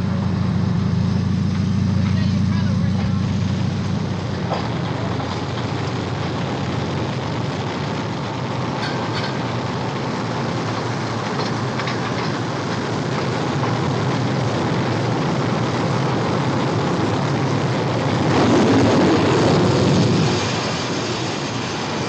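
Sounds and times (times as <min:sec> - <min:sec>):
jet engine roar: 0:00.0 - 0:22.0.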